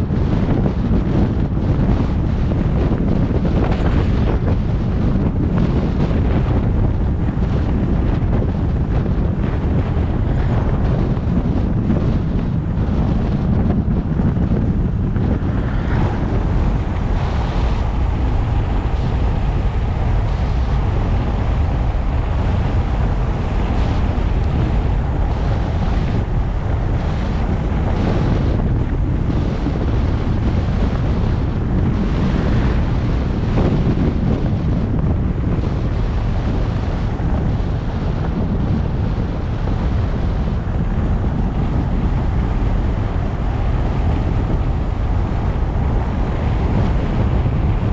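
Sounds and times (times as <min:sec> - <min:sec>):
low car rumble: 0:00.0 - 0:47.9
wind buffeting microphone: 0:00.0 - 0:47.9.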